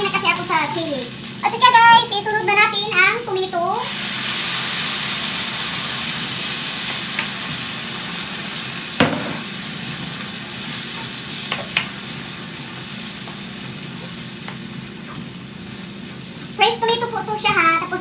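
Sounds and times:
tomato sizzling in hot oil: 0.0s - 18.0s
sharp knock: 9.0s - 9.5s.

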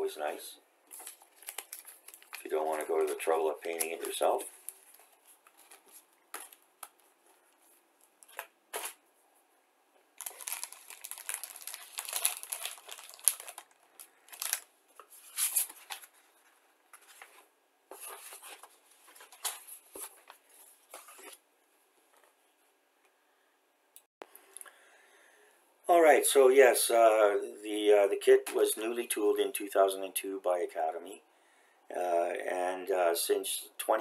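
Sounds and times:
plastic bag crinkling: 0.9s - 7.1s, 10.2s - 16.2s.

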